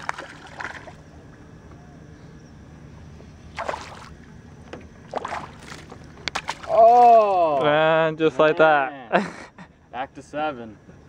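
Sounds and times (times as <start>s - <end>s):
fish splashing in water: 0.0s - 1.1s, 3.5s - 4.2s, 5.1s - 7.4s
low steady rumble: 0.0s - 8.5s.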